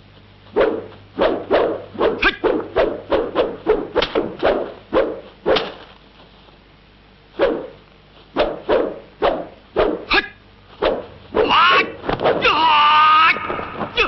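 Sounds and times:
staff swishing: 0:00.5 - 0:05.9, 0:07.4 - 0:12.5.

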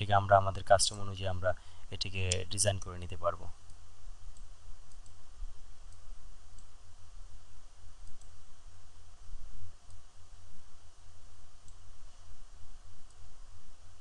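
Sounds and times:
steady low hum: 0:00.0 - 0:14.0
faint computer mouse clicks: 0:03.6 - 0:05.2, 0:08.0 - 0:08.4.

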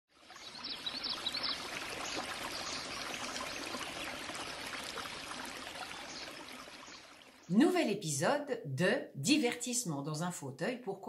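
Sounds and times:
stream cascading over rocks: 0:00.2 - 0:07.4.

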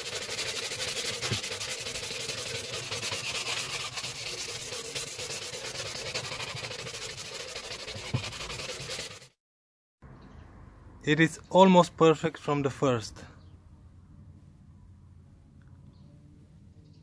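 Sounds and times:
sandpaper rasping on body filler: 0:00.0 - 0:09.4.

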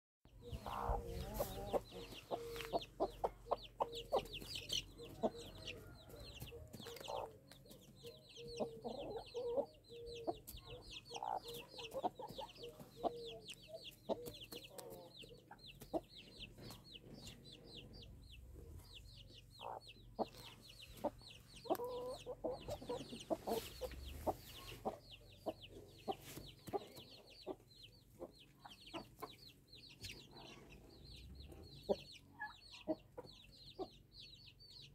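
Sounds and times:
chickens clucking: 0:00.3 - 0:34.9
chicks peeping: 0:00.3 - 0:34.9.

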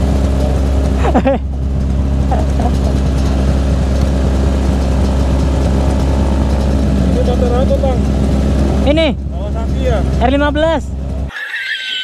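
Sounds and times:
motorcycle engines idling: 0:00.0 - 0:11.3.

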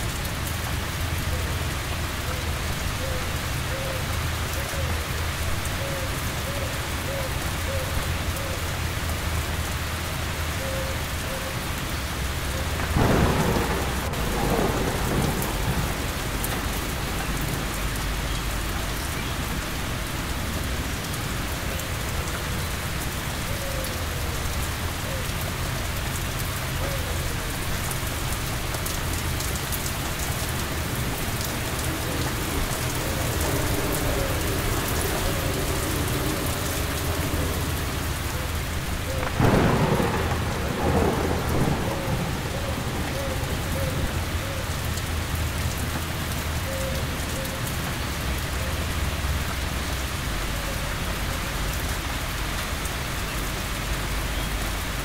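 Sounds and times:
steady rain falling: 0:00.0 - 0:55.0
thunder clap rumbling: 0:12.4 - 0:46.8.

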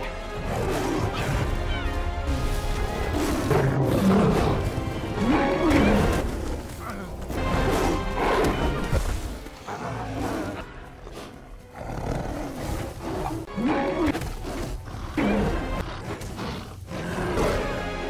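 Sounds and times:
film score music: 0:00.0 - 0:18.0
big cats roaring and snarling: 0:00.4 - 0:18.0.

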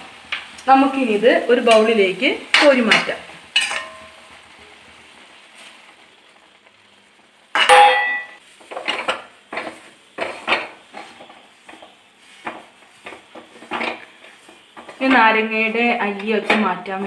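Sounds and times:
metal pan clang: 0:02.5 - 0:04.3, 0:07.5 - 0:08.4.

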